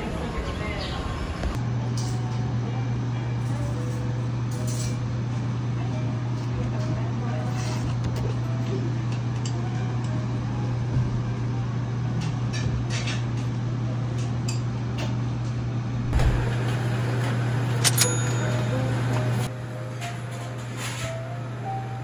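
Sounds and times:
low hum: 16.0 - 20.7
sharp clink: 17.8 - 18.6.

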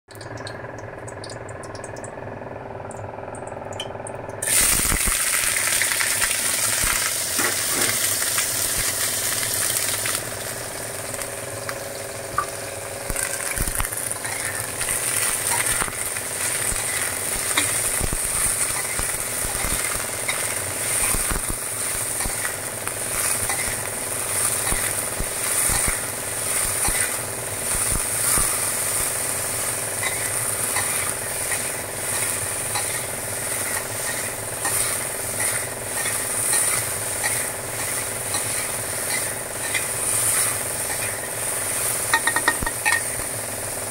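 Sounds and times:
peppers sizzling in hot oil: 4.4 - 43.9
metal spatula scraping a wok: 14.2 - 14.7, 30.0 - 41.4, 42.1 - 43.2.

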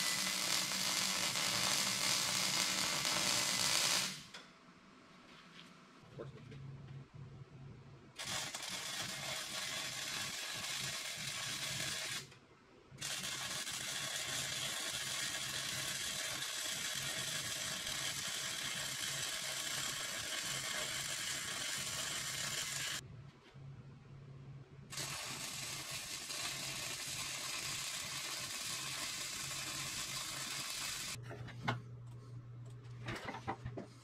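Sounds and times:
welding arc crackling and hissing: 0.0 - 4.4, 8.2 - 12.3, 13.0 - 23.0, 24.9 - 31.2.

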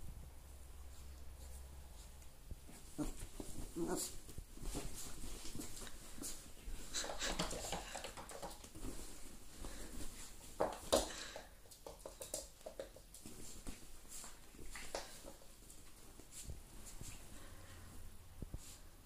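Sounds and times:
dog paws scratching fabric bed: 0.9 - 10.9, 12.8 - 17.5.

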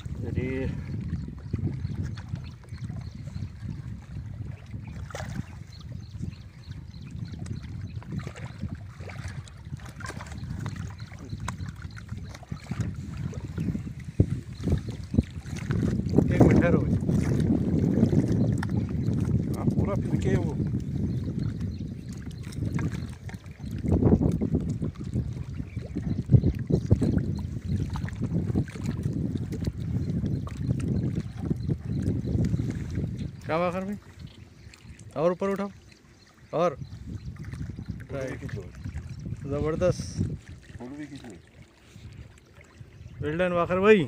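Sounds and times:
wind rumble on microphone: 0.0 - 44.0
fish splashing in water: 5.0 - 5.6.

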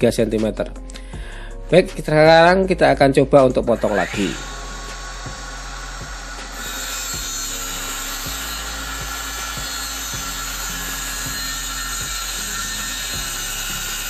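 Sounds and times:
background music: 0.0 - 14.0
circular saw cutting plywood: 3.7 - 14.0.

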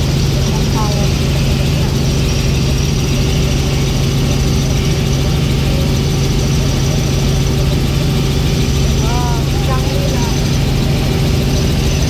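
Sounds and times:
helicopter engine and rotor hum: 0.0 - 12.0.

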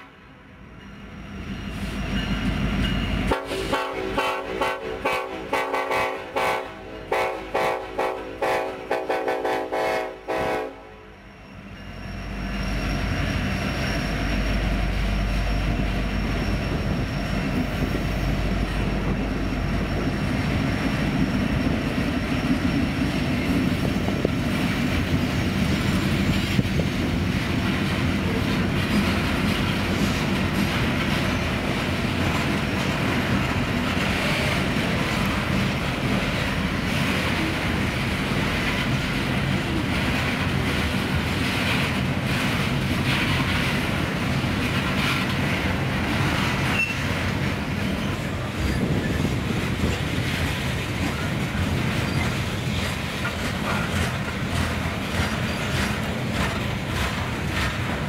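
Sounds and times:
train cars rumbling past: 0.0 - 58.0
locomotive horn: 3.3 - 11.3
wheel clatter over rail joints: 15.5 - 58.0.

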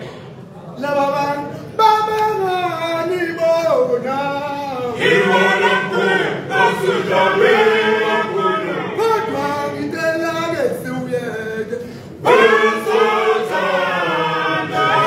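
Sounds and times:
male choir singing unaccompanied: 3.0 - 15.0.

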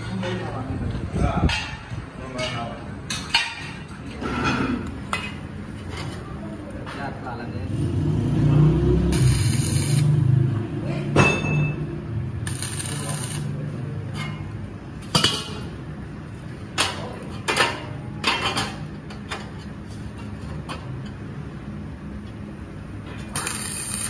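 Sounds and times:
arc welding crackling: 8.9 - 10.5, 12.2 - 13.7, 23.3 - 24.0.

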